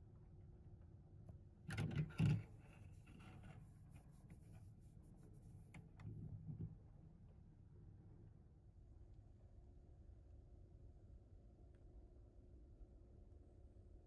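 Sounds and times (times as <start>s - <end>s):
handling scraping and rubbing: 2.1s - 5.8s.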